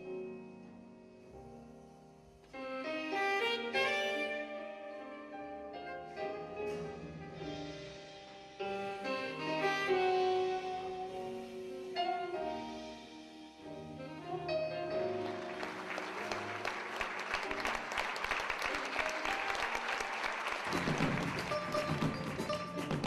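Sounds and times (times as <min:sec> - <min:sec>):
slow saxophone phrase: 0:02.5 - 0:13.2
audience applauding: 0:15.2 - 0:23.0.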